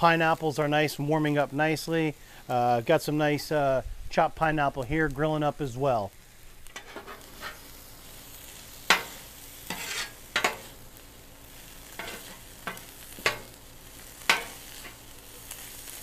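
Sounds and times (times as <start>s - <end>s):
chicken sizzling on a griddle: 0.0s - 16.0s
metal spatulas scraping and clacking: 6.8s - 7.6s, 8.9s - 10.6s, 12.0s - 13.5s, 14.3s - 15.0s.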